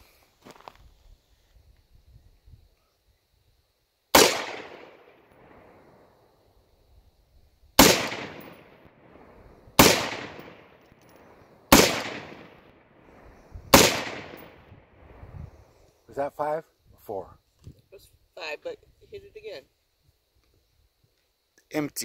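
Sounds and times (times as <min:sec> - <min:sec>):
rifle shots echoing: 0:04.1 - 0:05.9, 0:07.8 - 0:14.8.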